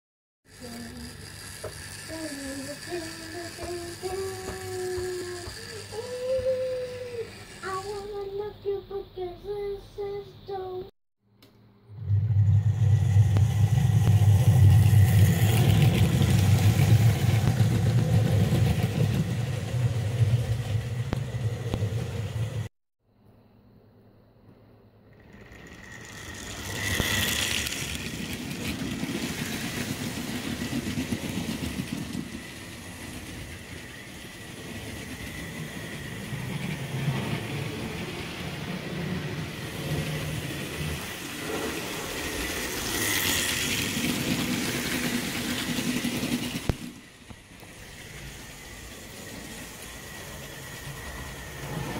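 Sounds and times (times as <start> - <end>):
wheels rattling on rail: 0.5 - 8.3, 12.9 - 22.7, 25.2 - 51.9
electric motor hum: 0.5 - 8.5, 25.0 - 51.9.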